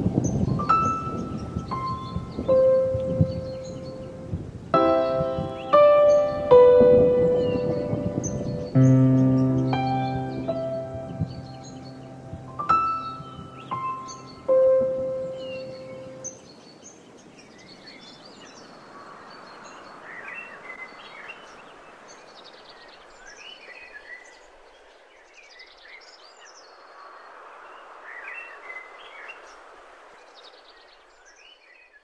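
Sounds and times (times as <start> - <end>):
outdoor ambient hiss: 0.0 - 32.0
songbirds chirping and trilling: 0.0 - 32.0
music: 0.5 - 4.2, 4.8 - 16.2.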